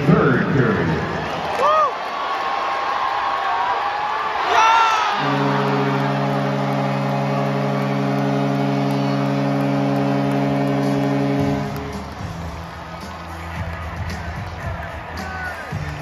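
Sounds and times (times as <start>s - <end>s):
crowd cheering: 0.0s - 16.0s
goal horn chord: 5.1s - 13.7s.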